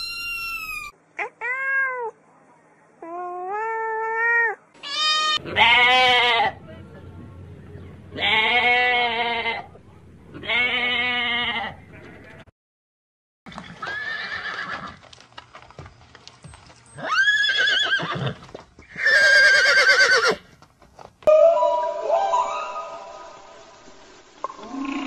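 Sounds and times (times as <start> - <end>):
goat bleating: 4.8 - 6.6, 8.1 - 12.3
horse whinnying: 13.5 - 15.0, 17.0 - 20.4.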